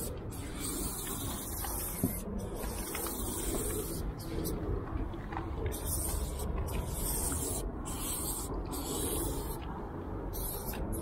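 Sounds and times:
spray paint can hissing: 0.0 - 4.5, 5.7 - 9.6, 10.3 - 11.0
low steady rumble: 0.0 - 11.0.

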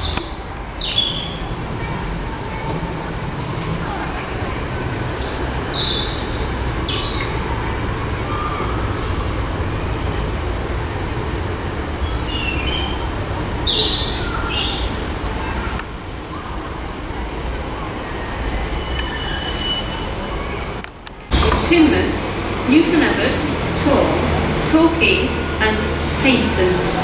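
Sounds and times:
diesel train rumble: 0.0 - 27.0
high-pitched wheel squeals: 17.6 - 20.8.

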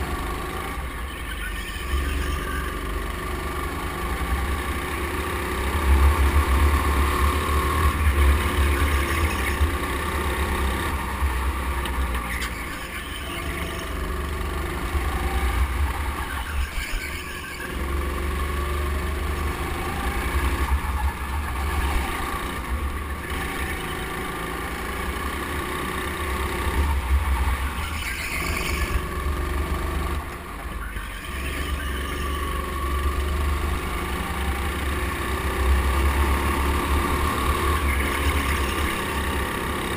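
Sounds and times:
go-kart motor droning: 0.0 - 39.9.

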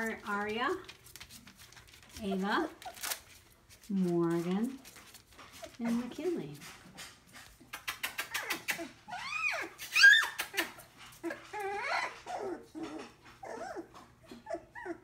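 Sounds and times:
puppies yipping and whining: 7.5 - 15.0
quick ticks: 7.7 - 8.8.

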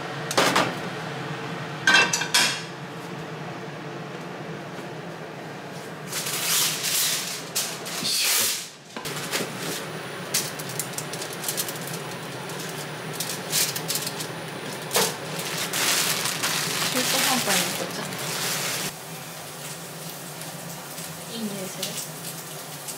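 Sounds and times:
aluminium foil crinkling: 6.1 - 8.0, 9.1 - 22.9.

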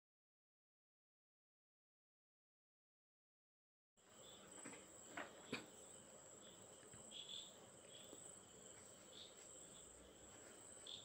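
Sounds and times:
crickets chirring: 4.0 - 11.0.

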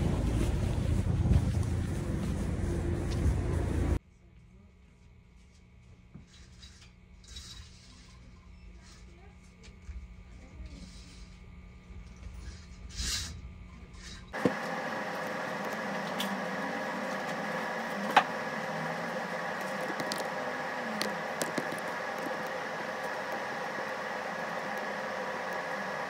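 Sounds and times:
machine hum: 0.0 - 4.0, 14.3 - 26.0.

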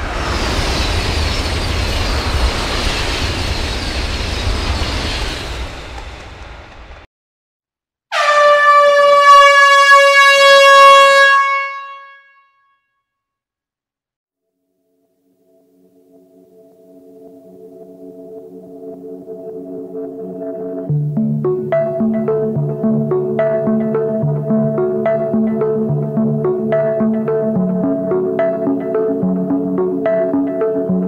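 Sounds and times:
long air horn blast: 8.1 - 12.6.

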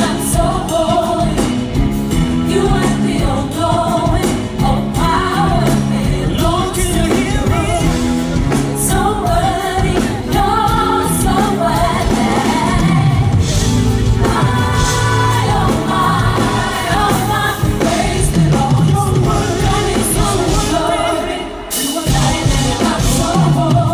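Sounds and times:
electric guitars and drums: 0.0 - 23.9
man singing amplified vocals: 6.1 - 8.1.

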